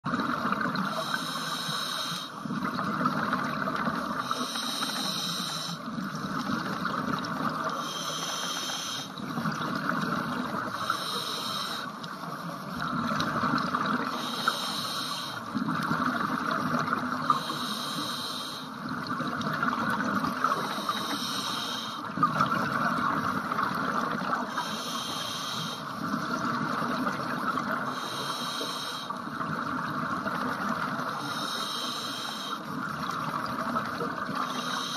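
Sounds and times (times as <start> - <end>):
underwater bubbling: 0.0 - 34.9
regulator breath hiss: 0.9 - 2.4, 4.2 - 5.8, 7.8 - 9.2, 10.8 - 12.0, 14.1 - 15.5, 17.3 - 18.8, 20.6 - 22.1, 24.5 - 25.9, 27.9 - 29.2, 31.2 - 32.7, 34.4 - 34.9.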